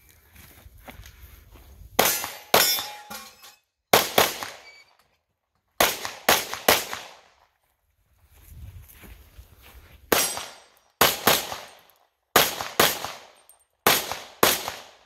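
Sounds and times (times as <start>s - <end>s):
pistol shots with echo: 3.9s - 4.7s, 5.8s - 7.3s, 10.1s - 11.8s, 12.4s - 15.0s.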